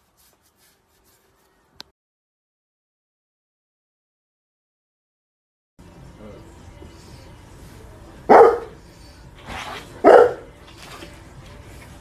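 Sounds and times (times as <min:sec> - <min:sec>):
dog barking: 0:08.2 - 0:08.8, 0:10.0 - 0:10.5.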